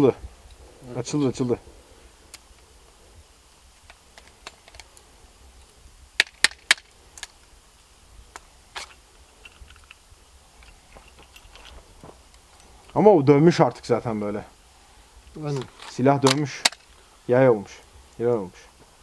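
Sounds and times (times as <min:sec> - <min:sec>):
pistol mechanism clacking: 0:06.2 - 0:07.4, 0:15.6 - 0:16.9.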